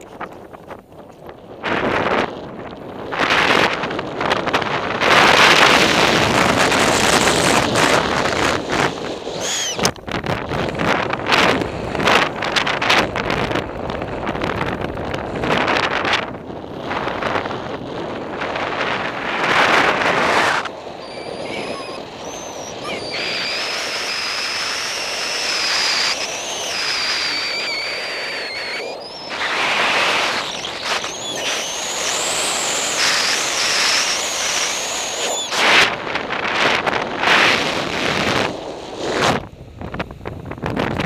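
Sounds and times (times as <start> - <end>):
wind buffeting microphone: 0.0 - 41.0
thin high whistle: 9.4 - 9.9, 20.4 - 35.9.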